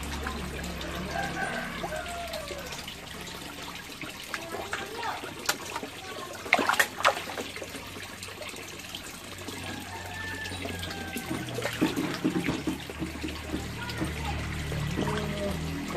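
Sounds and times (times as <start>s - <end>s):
fish splashing in pond water: 0.0s - 15.9s.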